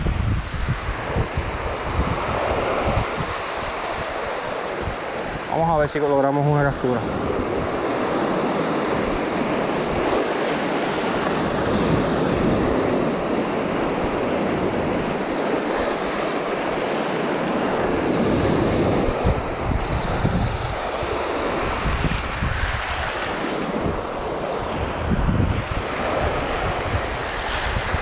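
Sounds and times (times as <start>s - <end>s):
small surf breaking on beach: 0.0s - 28.0s
wind buffeting microphone: 0.0s - 28.0s.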